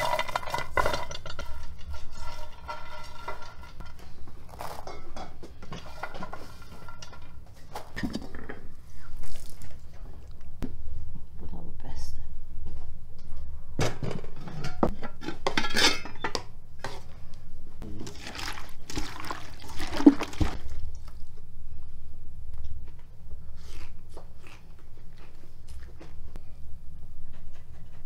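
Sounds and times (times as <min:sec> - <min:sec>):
bowl scraping and clinking pot: 0:00.0 - 0:04.0, 0:04.6 - 0:09.6
steady low hum: 0:00.0 - 0:28.0.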